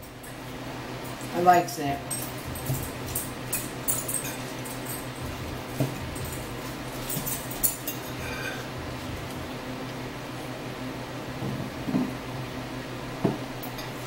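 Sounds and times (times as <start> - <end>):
forks clinking on plates: 1.0 - 8.8.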